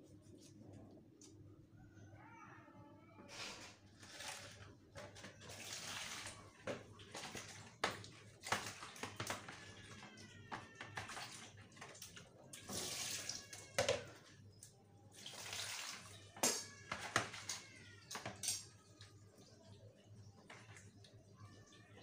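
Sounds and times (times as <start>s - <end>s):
water splashing in plastic basin: 3.9s - 14.4s, 15.1s - 18.4s, 20.3s - 22.0s.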